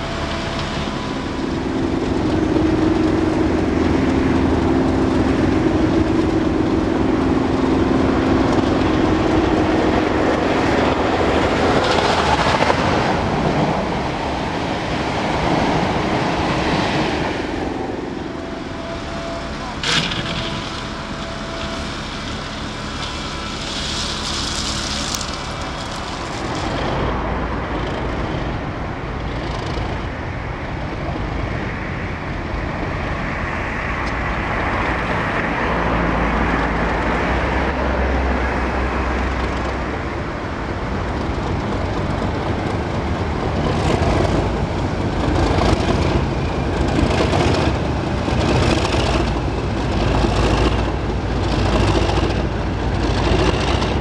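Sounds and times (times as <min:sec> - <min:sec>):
diesel locomotive engine: 0:00.0 - 0:54.0
wagon wheels clicking over rail joints: 0:19.7 - 0:30.1, 0:38.6 - 0:54.0.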